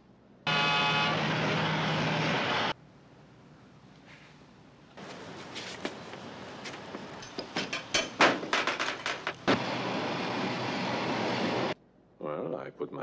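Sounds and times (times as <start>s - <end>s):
sharp clatters and knocks: 7.2s - 9.6s.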